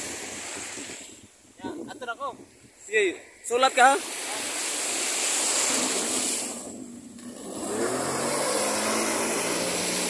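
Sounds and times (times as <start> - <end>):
rushing water spray: 0.0 - 1.3, 3.5 - 10.0
jet ski engine revving: 4.0 - 10.0.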